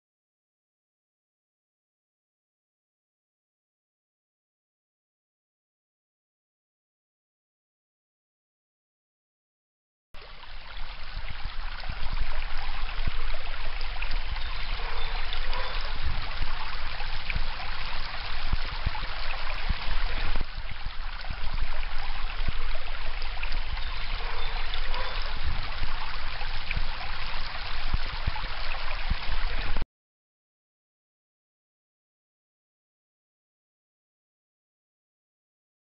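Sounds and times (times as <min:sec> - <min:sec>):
stream trickling over stones: 0:10.2 - 0:29.8.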